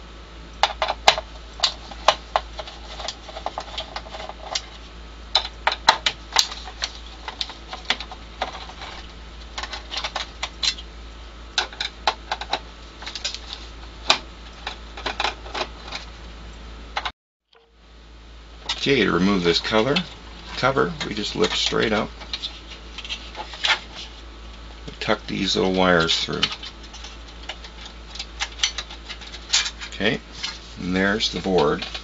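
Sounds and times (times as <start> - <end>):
screwdriver clicking on sheet metal: 26.3 - 30.0.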